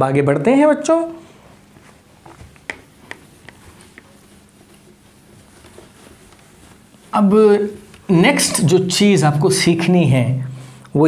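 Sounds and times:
cloth wiping whiteboard: 1.0s - 10.8s
light clicks and taps: 2.3s - 4.8s.

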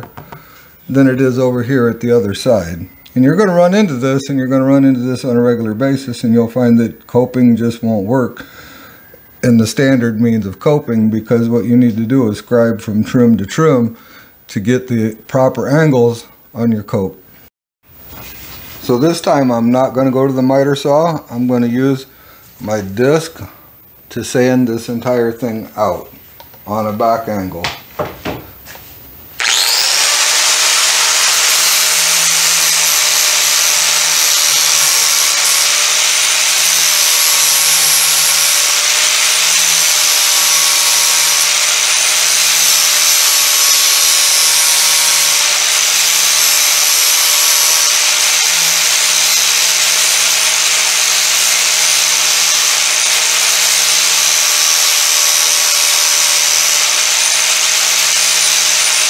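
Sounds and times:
angle grinder sanding wood: 28.6s - 59.0s.

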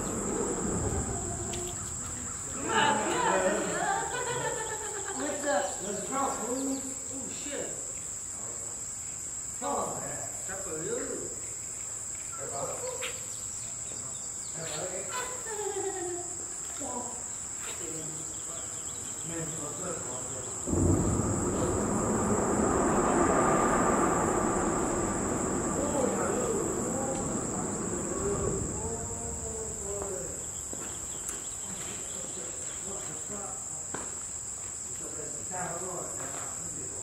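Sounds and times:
low rushing noise: 0.0s - 4.8s, 20.5s - 31.6s
insects droning: 0.0s - 37.0s.

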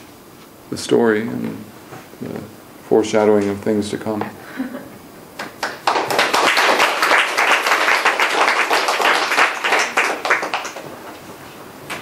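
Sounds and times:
audience applauding: 5.4s - 11.2s.

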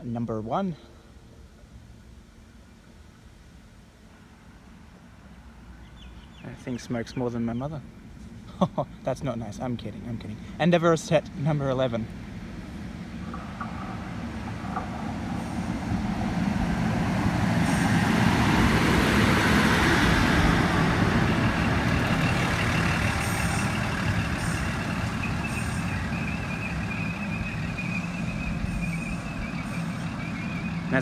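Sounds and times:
diesel engines humming: 0.0s - 31.0s
wheels rumbling on rail: 0.0s - 31.0s
high-pitched whine: 11.4s - 31.0s.

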